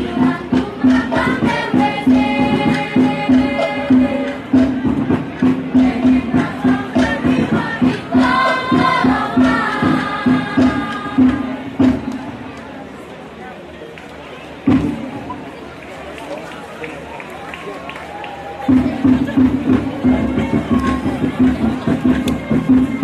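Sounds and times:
group singing in unison: 0.0 - 12.0
steady drum beat: 0.0 - 12.5, 18.6 - 23.0.

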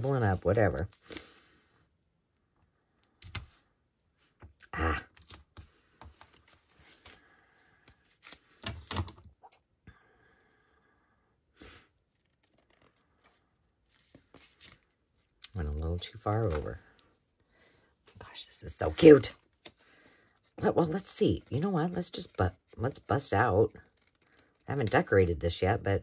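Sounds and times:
paper rustling: 5.2 - 9.0, 12.0 - 15.1.

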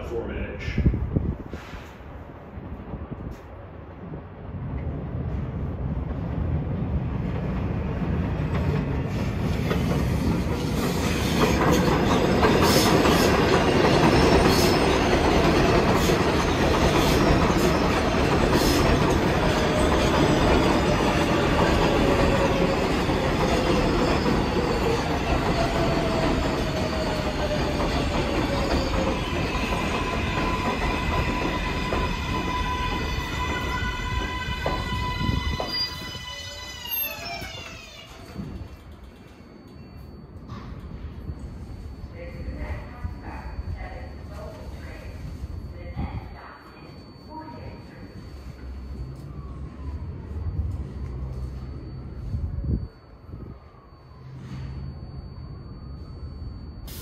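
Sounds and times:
train whine falling in pitch: 18.7 - 39.6.

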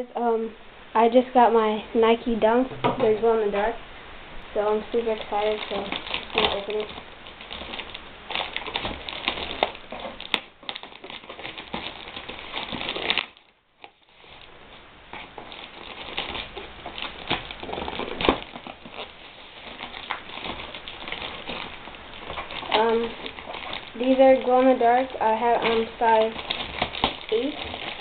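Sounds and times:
plastic bag crinkling: 4.6 - 28.0
scissors cutting plastic: 8.4 - 13.4, 19.7 - 28.0.

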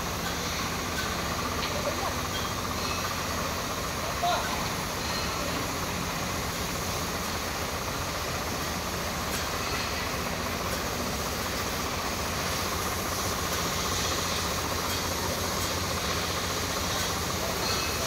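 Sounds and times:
sprayer pump: 0.0 - 18.0
tractor diesel engine running: 0.0 - 18.0
hiss of spray jet: 4.7 - 18.0.

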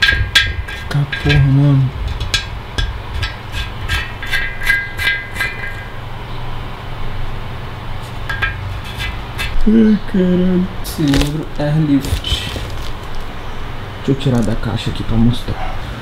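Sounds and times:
knocks on metal tank ringing: 0.0 - 6.0.

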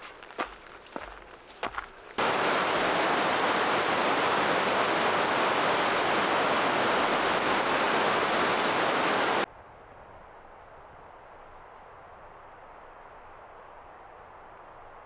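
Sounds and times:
white-water rapids rushing: 2.2 - 9.5.

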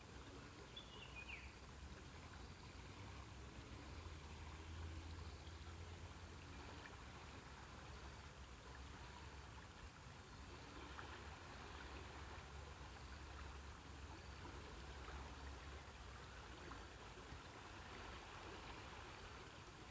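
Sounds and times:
low steady rumble: 0.0 - 19.9
rushing river: 0.0 - 19.9.

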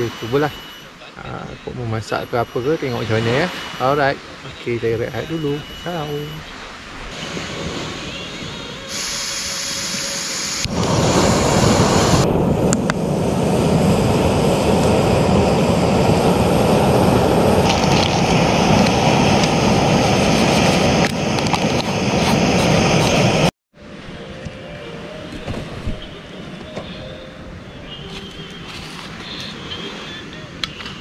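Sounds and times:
camping stove flame rushing: 7.1 - 23.5.

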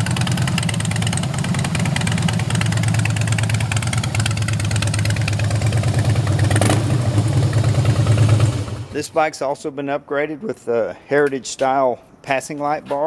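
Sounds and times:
motorcycle engine idling: 0.0 - 9.0.

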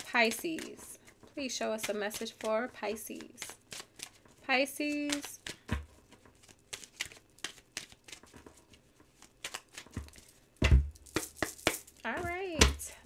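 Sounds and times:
cards being shuffled: 0.0 - 10.4, 11.0 - 12.8
dull thump: 10.0 - 11.0.

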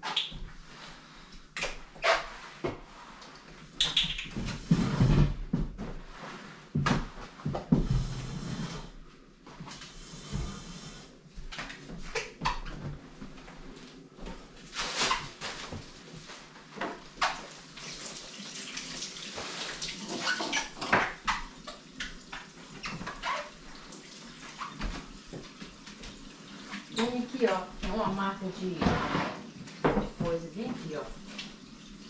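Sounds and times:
water running into sink: 17.2 - 28.2.

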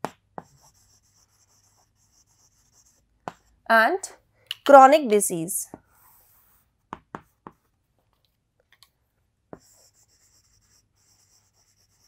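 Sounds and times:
chalk tapping on board: 0.0 - 3.5, 6.8 - 7.6, 9.5 - 12.0
chalk scratching on chalkboard: 0.4 - 3.6, 5.7 - 7.7, 9.6 - 12.0.

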